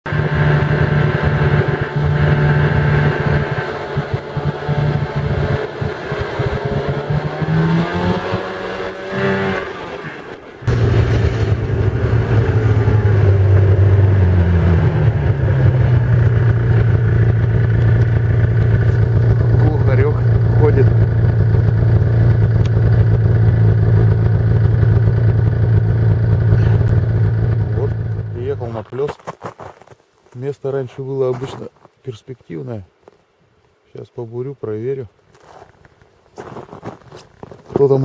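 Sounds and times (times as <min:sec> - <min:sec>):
snowmobile engine running: 0:00.1 - 0:29.0.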